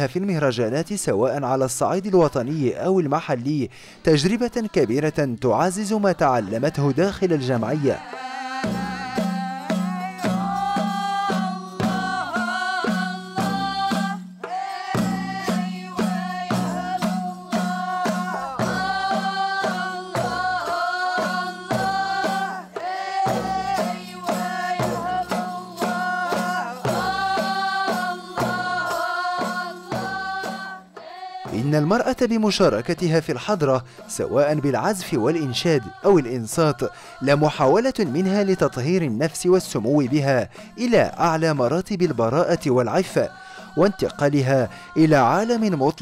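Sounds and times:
women singing in unison: 4.0 - 46.0
hand drums beating: 8.0 - 32.8, 36.6 - 46.0.

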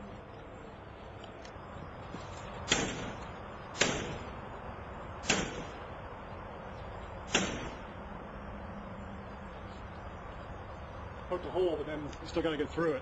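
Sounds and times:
crowbar striking metal screen: 7.3 - 7.8.

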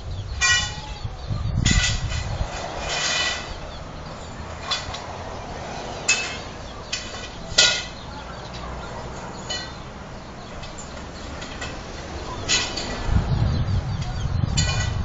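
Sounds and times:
high-pitched bird cries: 0.0 - 4.9
low outdoor background: 0.0 - 15.0.

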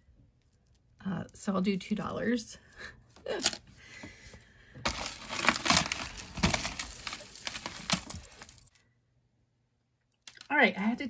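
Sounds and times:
jewelry chains and beads clinking: 4.9 - 8.8.

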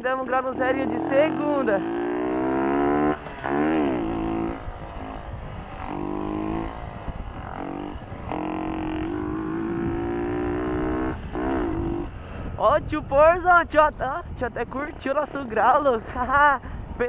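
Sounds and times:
motorcycle engine revving hard: 0.3 - 12.5.

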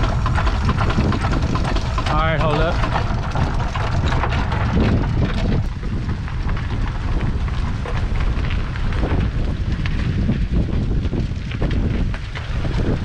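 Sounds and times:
steam traction engine running: 0.0 - 9.8
wind buffeting microphone: 0.0 - 13.0.

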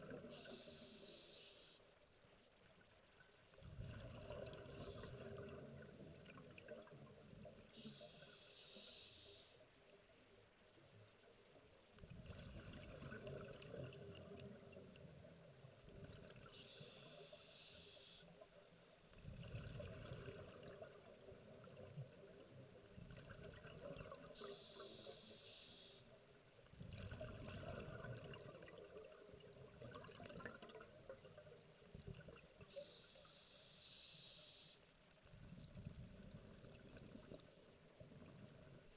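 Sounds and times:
exhaled air bubbling underwater: 0.0 - 1.2, 3.2 - 8.6, 11.9 - 33.2, 35.2 - 38.9
regulator hiss on inhale: 0.2 - 2.0, 4.7 - 5.4, 7.7 - 9.7, 16.4 - 18.5, 24.4 - 26.2, 32.7 - 35.0.

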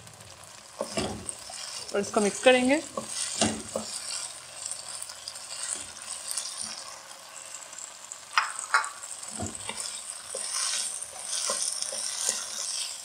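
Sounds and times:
food sizzling in a wok: 0.0 - 13.0
spatula knocking and scraping pan: 0.8 - 4.3, 8.4 - 13.0.

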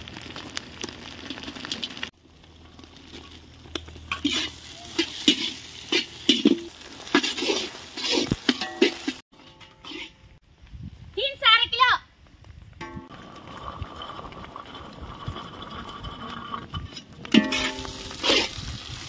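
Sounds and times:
food sizzling in hot oil: 0.0 - 9.2, 17.3 - 19.0
utensil scraping a pan: 4.1 - 10.4, 13.8 - 18.8.

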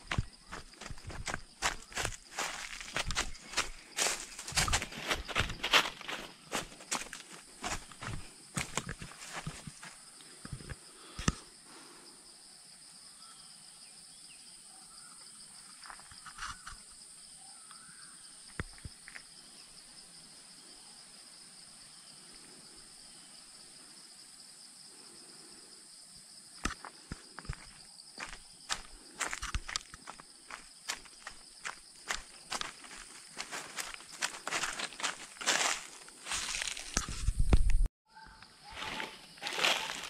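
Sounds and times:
footsteps crunching on leaf litter: 0.0 - 9.9, 27.4 - 37.5, 38.7 - 40.0
insects droning: 0.0 - 40.0.

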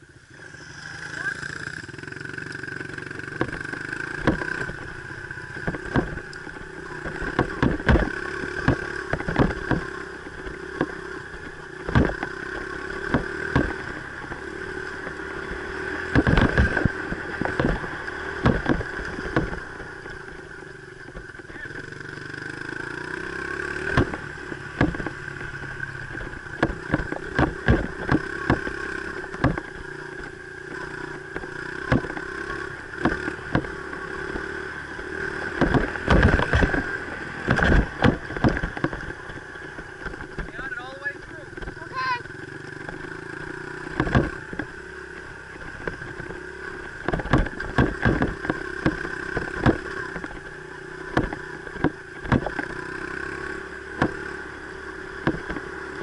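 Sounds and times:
dirt bike engine running: 0.0 - 56.0
sharp knocks and clatter: 2.5 - 56.0.

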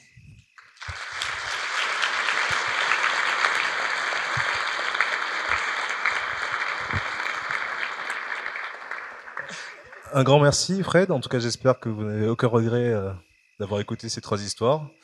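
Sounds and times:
audience applauding: 0.6 - 10.7.

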